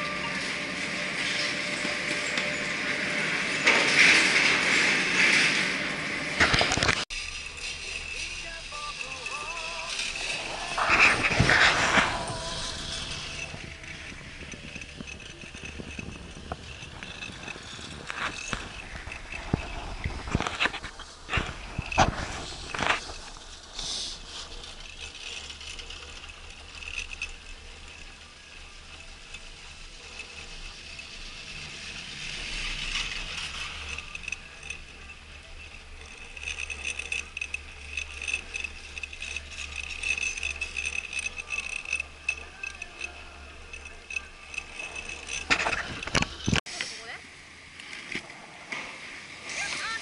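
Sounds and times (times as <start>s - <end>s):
chairlift mechanical rattle: 0.0s - 48.6s
wind rumble on microphone: 10.7s - 23.7s.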